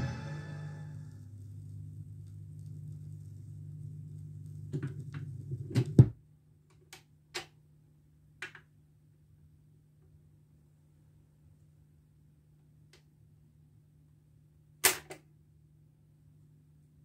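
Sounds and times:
low speaker hum: 0:00.0 - 0:05.0.

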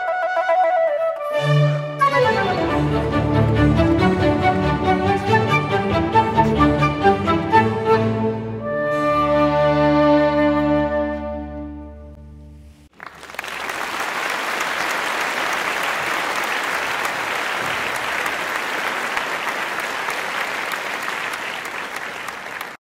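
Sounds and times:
flute and strings chord: 0:00.0 - 0:12.5
audience applause: 0:12.9 - 0:22.8.

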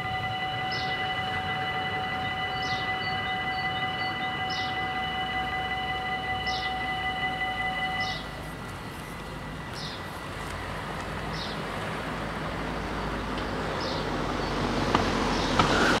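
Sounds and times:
bird chirping: 0:00.0 - 0:10.3, 0:11.2 - 0:11.7, 0:12.7 - 0:14.7
car driving past: 0:00.0 - 0:16.0.

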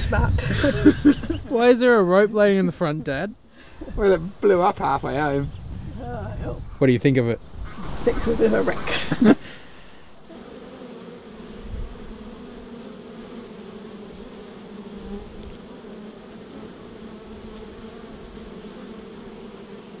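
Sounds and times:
honey bees buzzing: 0:07.6 - 0:20.0.

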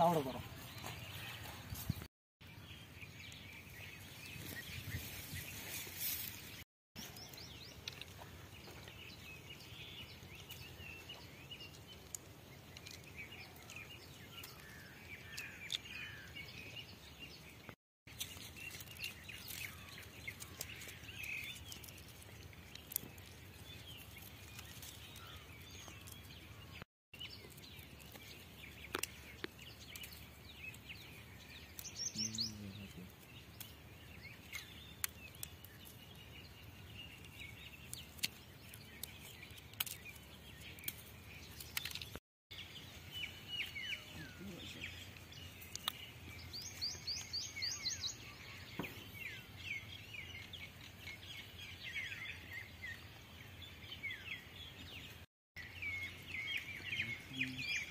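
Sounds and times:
faint outdoor background: 0:00.0 - 0:57.9
small birds chirping: 0:00.0 - 0:57.9
seed pods split by hand clicks: 0:18.1 - 0:26.4, 0:27.4 - 0:30.9, 0:34.4 - 0:36.0, 0:37.1 - 0:42.2, 0:45.1 - 0:46.1.

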